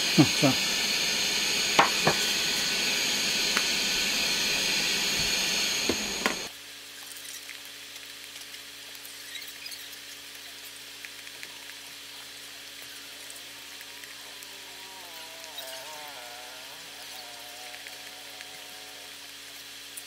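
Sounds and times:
hot air blower hiss and whine: 0.0 - 6.5, 13.0 - 19.8.

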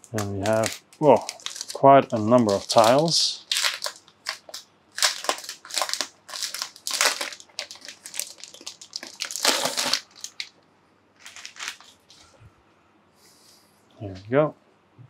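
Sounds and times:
packaging crinkling and rustling: 0.0 - 10.6, 11.2 - 12.3.

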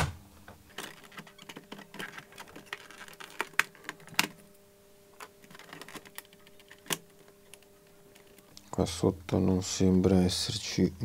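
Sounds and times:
hard plastic parts clicking: 0.6 - 4.5, 5.2 - 8.5.

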